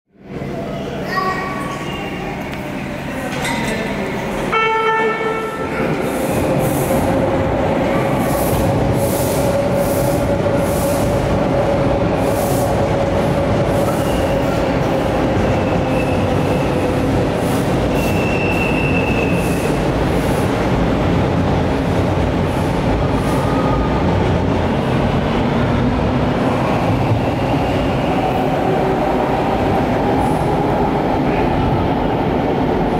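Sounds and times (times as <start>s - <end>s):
train wheels rumbling on rail: 2.6s - 32.9s
train horn blast: 4.5s - 5.7s.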